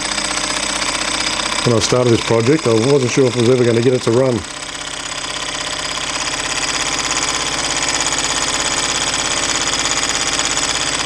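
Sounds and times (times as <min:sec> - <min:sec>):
engine rhythmic mechanical clatter: 0:00.0 - 0:11.0
man talking: 0:01.6 - 0:04.5.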